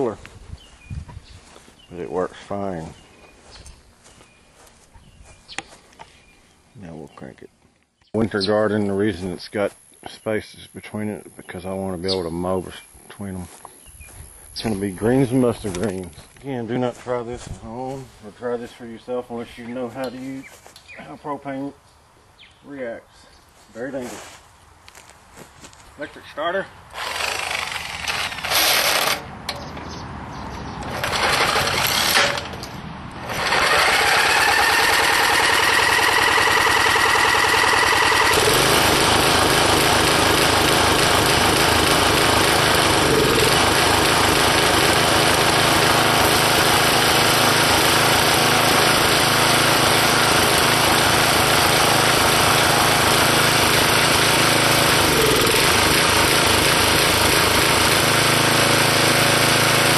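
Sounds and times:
small engine running: 26.9 - 29.3, 30.8 - 32.5, 33.2 - 59.9
electric starter cranking: 26.9 - 29.6, 30.8 - 32.6, 33.2 - 59.9.

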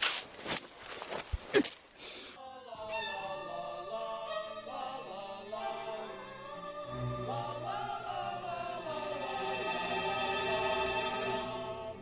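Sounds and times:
men and women singing together: 2.5 - 9.9.

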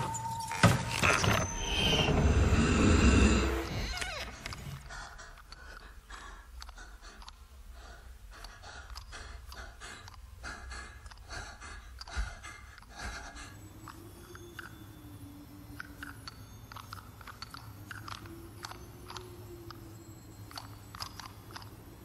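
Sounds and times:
low rumble: 1.4 - 3.8
person breathing quickly: 4.8 - 14.0.

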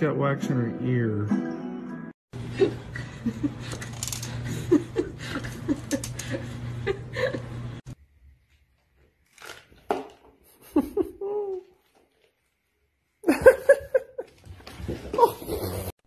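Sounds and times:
person chuckling: 2.5 - 7.6, 10.4 - 11.9, 13.2 - 14.5.

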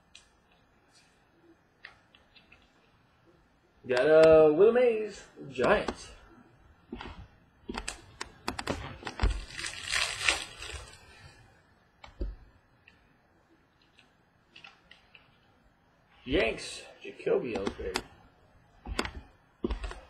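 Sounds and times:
papery rustling: 8.7 - 11.4.

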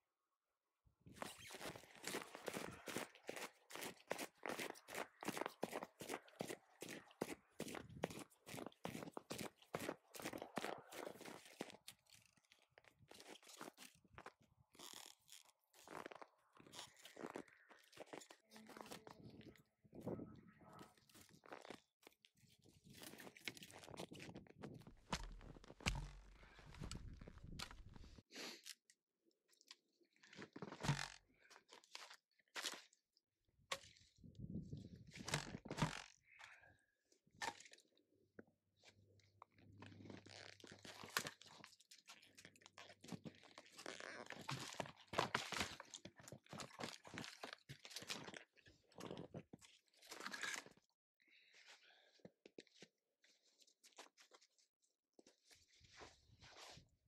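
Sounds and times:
footsteps crunching in snow: 1.2 - 11.8.

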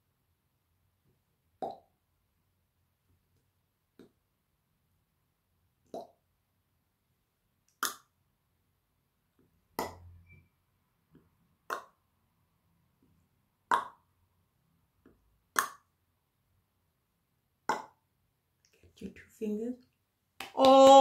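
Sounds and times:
hollow mouth pops: 1.6 - 1.9, 5.8 - 6.2, 7.7 - 8.1, 11.6 - 12.0, 13.7 - 14.1, 15.1 - 15.9, 17.6 - 18.0.

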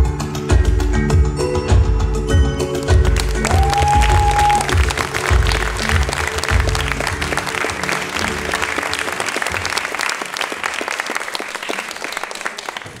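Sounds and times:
music: 0.0 - 13.0
audience applauding: 3.2 - 13.0.

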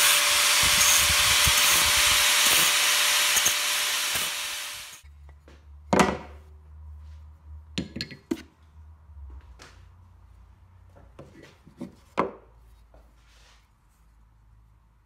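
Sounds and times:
angle grinder cutting metal: 0.0 - 5.0.

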